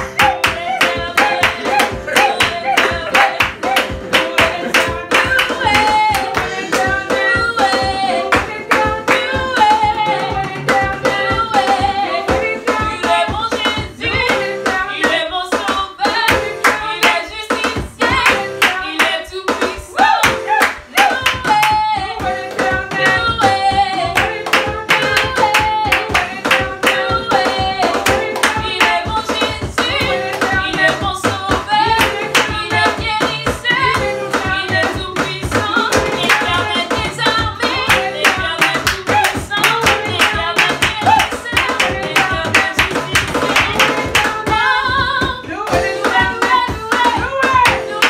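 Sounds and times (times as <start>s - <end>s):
hands clapping: 0.0s - 6.9s, 20.0s - 21.8s, 24.2s - 27.1s, 27.9s - 29.0s, 35.5s - 36.7s, 37.9s - 44.4s
electronic drum kit beat: 0.0s - 48.0s
woman singing: 0.0s - 48.0s.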